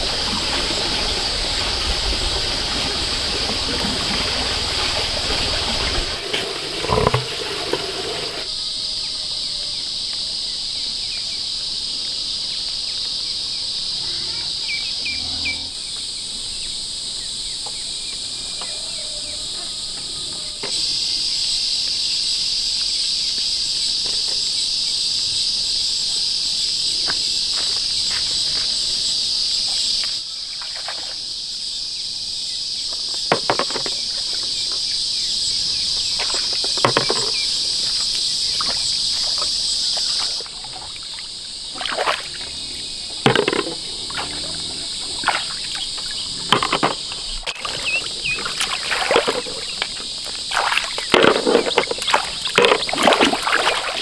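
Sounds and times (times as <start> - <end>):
insect chorus buzzing: 0.0 - 54.0
hands splashing in pond water: 30.6 - 31.2, 36.0 - 42.6, 43.2 - 54.0.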